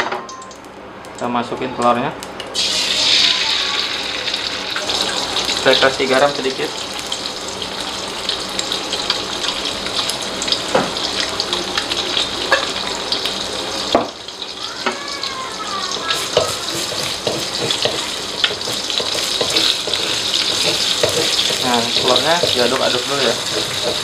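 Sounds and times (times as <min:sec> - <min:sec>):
oil crackling and popping: 0:02.2 - 0:24.0
egg sizzling in oil: 0:02.3 - 0:24.0
spatula stirring in wok: 0:15.9 - 0:24.0.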